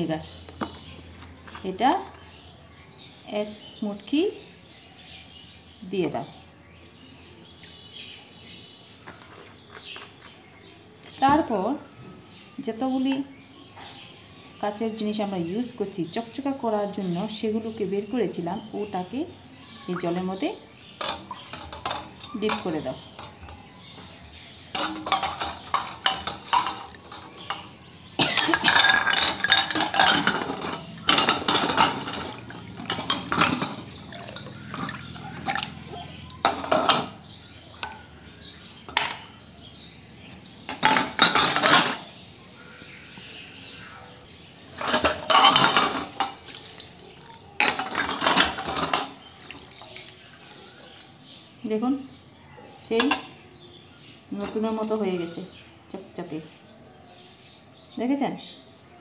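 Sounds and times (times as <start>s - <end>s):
water sloshing: 19.8s - 38.2s, 44.8s - 51.1s
glass clinking against metal bowl: 24.8s - 37.2s.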